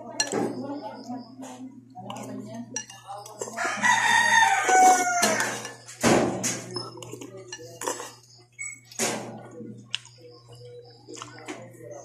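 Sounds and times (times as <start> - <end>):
spoon clattering in a bowl: 0.1 - 0.6, 2.1 - 9.0
rooster crowing: 3.6 - 5.8
eating noises: 6.6 - 11.9.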